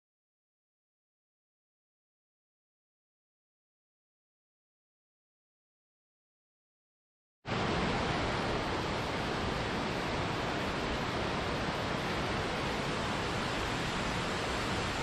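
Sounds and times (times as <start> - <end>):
waterfall and stream rushing: 7.5 - 15.0.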